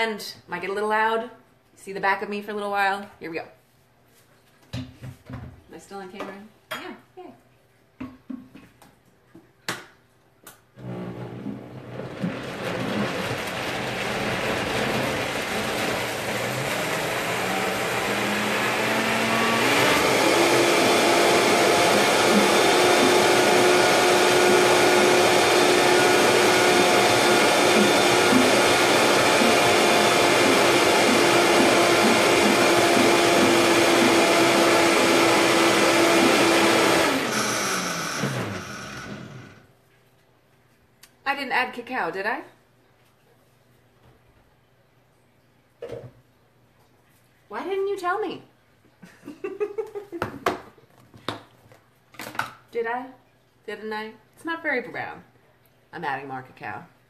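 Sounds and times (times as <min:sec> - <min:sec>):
blender motor whining: 0:10.8 - 0:39.7.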